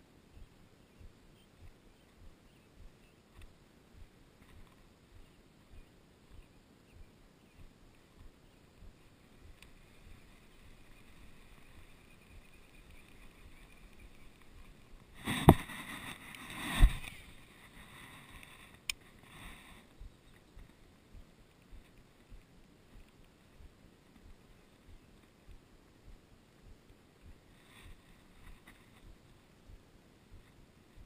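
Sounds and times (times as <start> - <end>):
click: 18.8 - 19.0.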